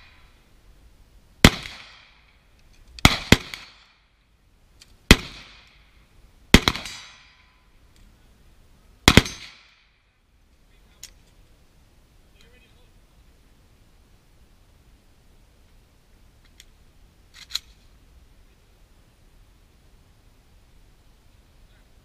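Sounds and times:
rifle shots with echo: 1.4 - 2.3, 3.0 - 4.0, 5.1 - 5.8, 6.5 - 7.5, 9.0 - 9.9.

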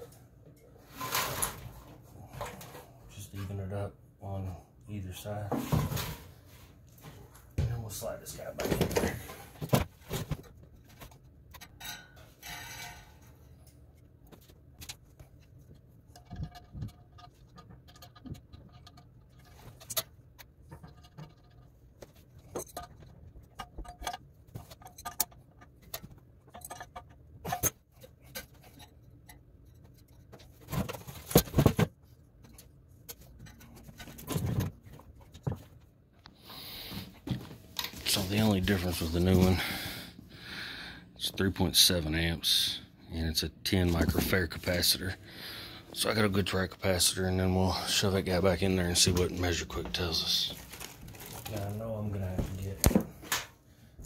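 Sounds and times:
metallic clanks and scrapes: 0.0 - 3.6, 8.6 - 14.0.

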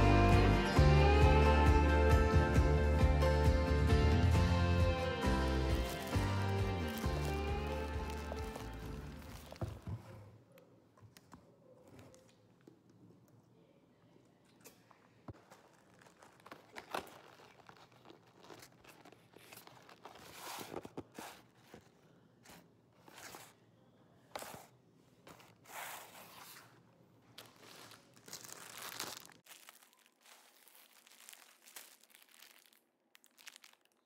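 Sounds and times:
packaging rustling and crinkling: 5.6 - 10.2, 15.3 - 23.5, 25.3 - 34.0.

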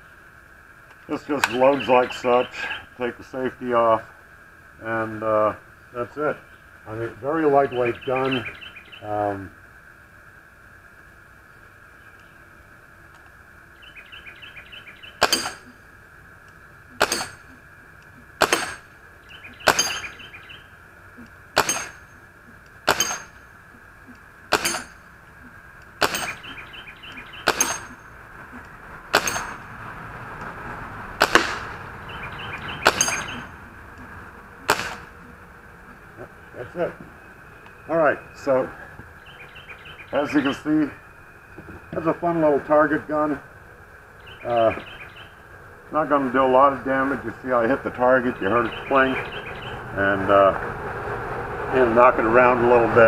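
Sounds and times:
pellets clinking on metal targets: 15.2 - 15.9, 17.0 - 17.6, 18.4 - 19.0, 19.6 - 20.2, 21.6 - 22.2, 22.9 - 23.6, 24.5 - 25.2, 26.0 - 26.6, 27.4 - 28.2, 29.1 - 29.6, 32.8 - 33.5
air rifle pops: 31.2 - 31.6, 34.7 - 35.1.

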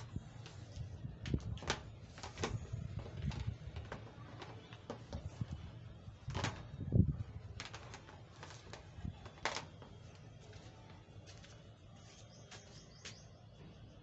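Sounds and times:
cord thumping on concrete: 0.0 - 10.2
cord clicks and rustles: 1.2 - 10.1.

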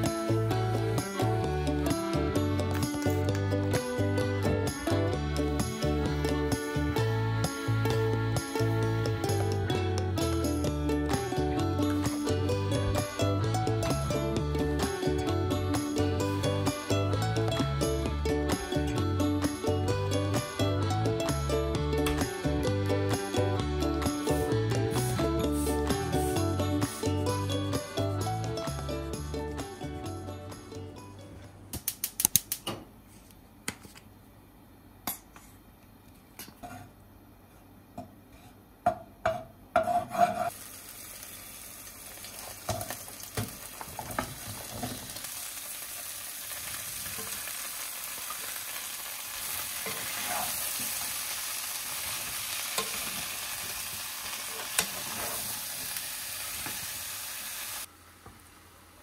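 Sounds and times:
utensil scraping a pan: 39.8 - 40.6
vegetables sizzling in oil: 40.5 - 59.0.

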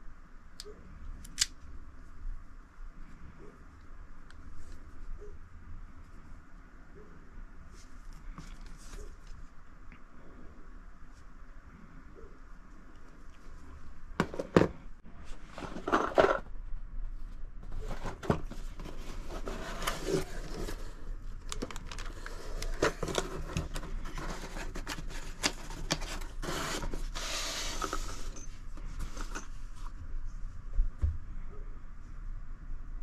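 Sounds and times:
metal and cardboard clicks and scraping: 15.5 - 16.6, 17.6 - 29.6
cardboard rustling: 17.6 - 29.9.

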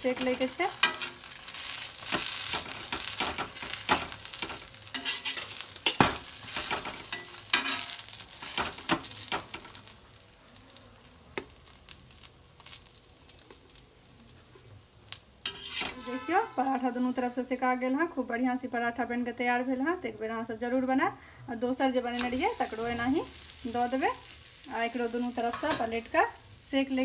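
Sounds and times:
flatbread sizzling on a griddle: 0.0 - 19.2, 22.1 - 27.0
spatula scraping pan: 0.1 - 9.8, 15.4 - 17.1.

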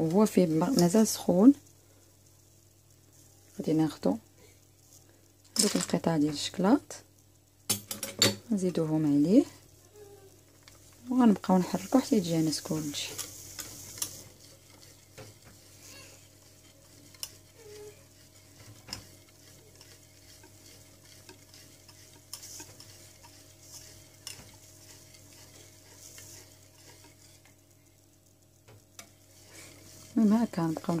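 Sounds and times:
wet stirring in a pot: 0.0 - 1.6, 10.4 - 31.0
faint steady hum: 0.0 - 31.0.

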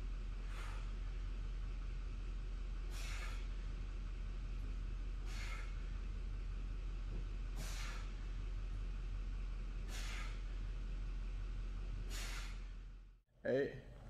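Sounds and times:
steady low hum: 0.0 - 14.0
man exhaling hard: 2.8 - 3.6, 5.2 - 5.9, 7.5 - 8.2, 9.8 - 10.6, 12.0 - 12.8.

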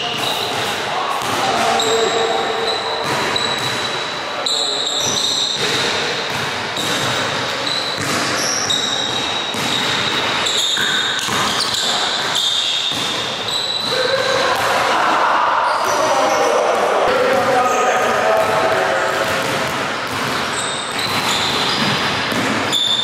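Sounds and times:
sneaker squeaks: 0.0 - 14.6, 17.6 - 23.0
basketball bouncing on hardwood: 19.2 - 22.6.

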